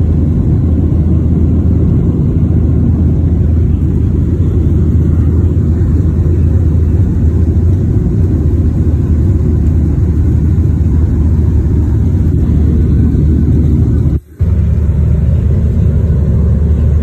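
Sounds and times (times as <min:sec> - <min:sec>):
jet cabin engine rumble: 0:00.0 - 0:17.0.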